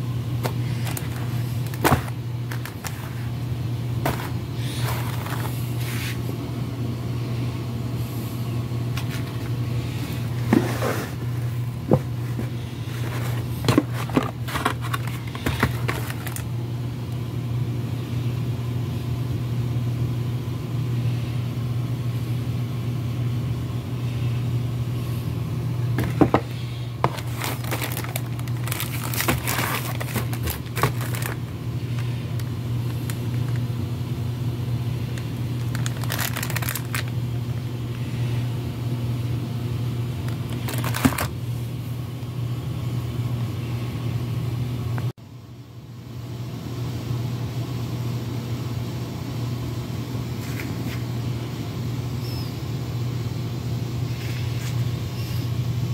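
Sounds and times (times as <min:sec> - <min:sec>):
low machinery hum: 0:00.0 - 0:55.9
cardboard box crinkling and scraping: 0:00.5 - 0:03.4, 0:04.0 - 0:06.2, 0:09.0 - 0:16.5, 0:26.0 - 0:33.6, 0:35.6 - 0:37.1, 0:40.5 - 0:41.3.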